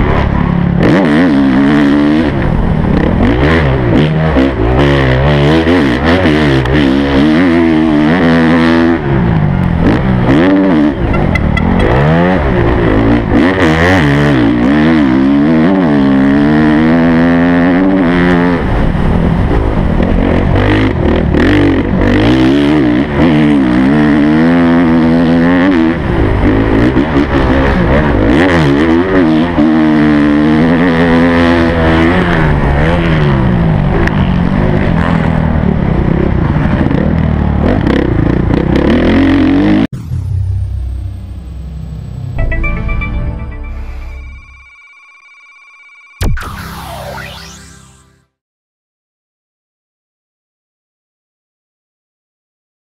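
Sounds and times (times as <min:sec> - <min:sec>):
motocross bike engine revving: 0:00.0 - 0:18.8.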